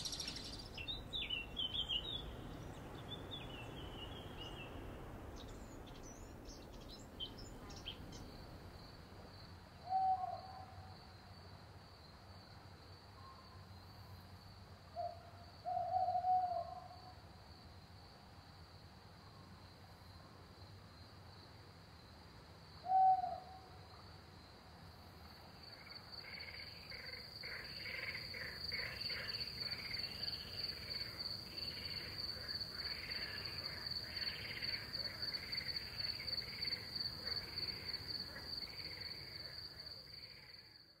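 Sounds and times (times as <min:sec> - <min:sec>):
crickets trilling: 0:00.0 - 0:13.0, 0:25.6 - 0:41.0
frog chorus: 0:25.6 - 0:41.0.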